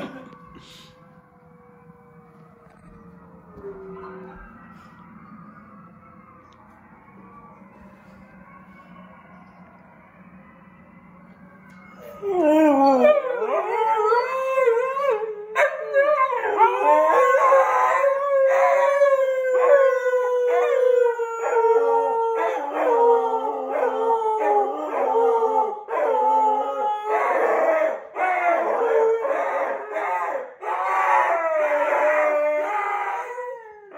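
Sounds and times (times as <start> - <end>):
dogs howling: 1.4 - 4.9, 12.0 - 33.9.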